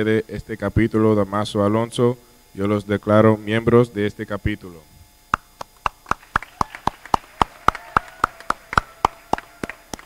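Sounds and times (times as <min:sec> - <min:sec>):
people clapping hands: 0:05.6 - 0:10.0.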